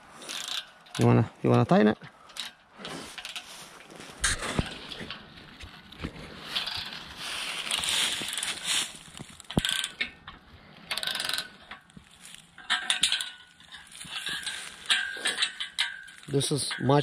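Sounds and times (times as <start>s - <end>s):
ratchet wrench clicking: 0.3s - 1.1s, 9.5s - 10.1s, 10.9s - 11.5s.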